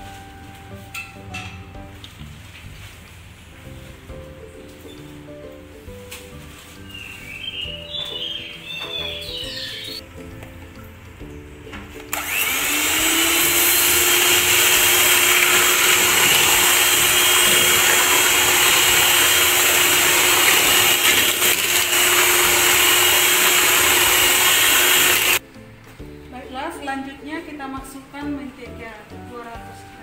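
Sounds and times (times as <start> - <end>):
electric hand mixer whine: 12.1 - 25.4
beaters whipping in steel bowl: 13.0 - 25.4.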